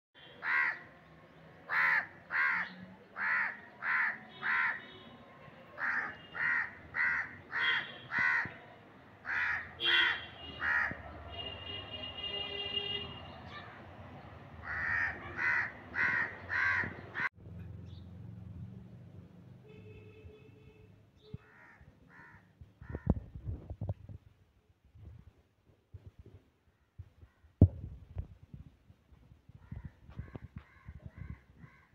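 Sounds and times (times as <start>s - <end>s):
crows cawing: 0.4s - 0.9s, 1.7s - 4.8s, 5.8s - 8.6s, 9.2s - 11.0s, 14.6s - 17.3s, 21.4s - 23.2s, 29.6s - 31.9s.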